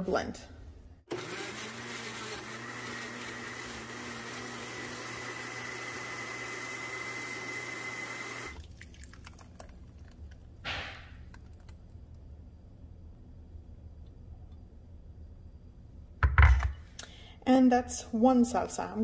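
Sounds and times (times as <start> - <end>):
blender motor whining: 1.1 - 8.6.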